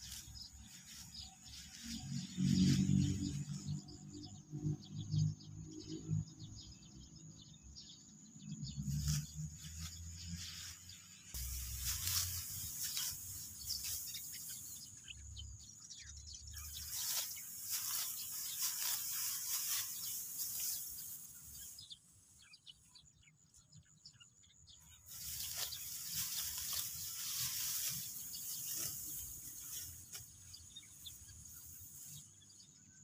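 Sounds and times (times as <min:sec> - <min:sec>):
sickle cutting dry straw: 0:00.0 - 0:03.7, 0:08.8 - 0:15.0, 0:16.6 - 0:21.8, 0:25.0 - 0:32.6
high insect buzz: 0:11.3 - 0:15.0.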